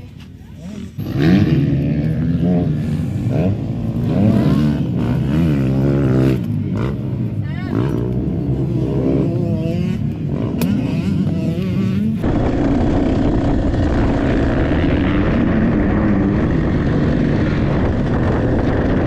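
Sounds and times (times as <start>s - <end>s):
dirt bike engine at speed: 0.0s - 19.0s
motocross bike engine revving: 0.6s - 19.0s
wind noise: 12.2s - 19.0s.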